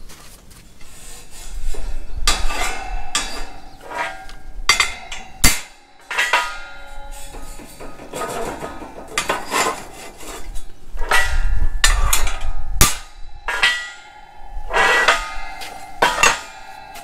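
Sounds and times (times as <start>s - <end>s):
hammer on metal slats: 2.3s - 17.0s.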